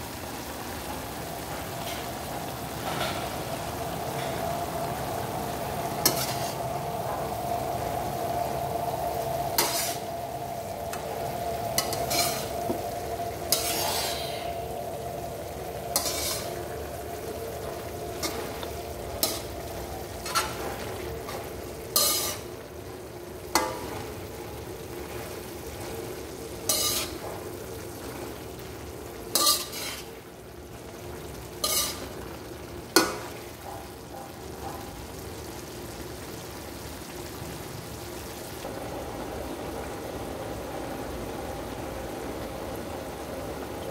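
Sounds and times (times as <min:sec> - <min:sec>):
food sizzling in a wok: 0:00.0 - 0:43.9
metal spatula scraping a wok: 0:06.0 - 0:06.6, 0:09.6 - 0:10.1, 0:11.7 - 0:12.6, 0:13.4 - 0:14.8, 0:15.9 - 0:17.0, 0:18.1 - 0:22.6, 0:26.6 - 0:27.5, 0:29.3 - 0:30.2, 0:31.6 - 0:32.2.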